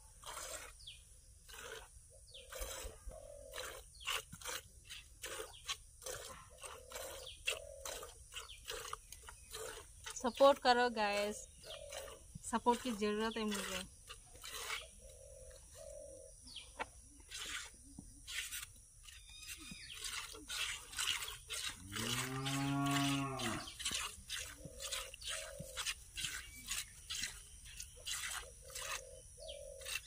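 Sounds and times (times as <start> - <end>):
milk squirting into bucket: 0.2 - 14.9, 17.2 - 29.0
cow mooing: 21.8 - 23.8.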